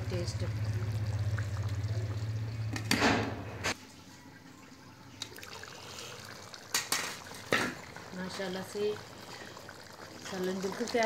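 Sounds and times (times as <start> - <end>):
curry simmering with steamy hiss: 5.0 - 11.0.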